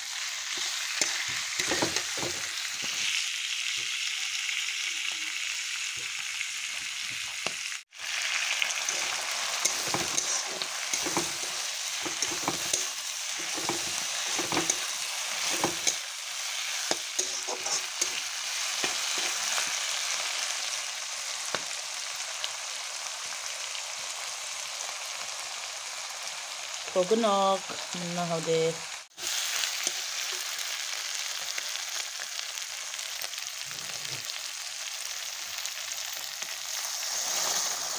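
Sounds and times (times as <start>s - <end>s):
meat sizzling in a pan: 0.0s - 37.9s
spatula scraping a pan: 8.8s - 19.8s.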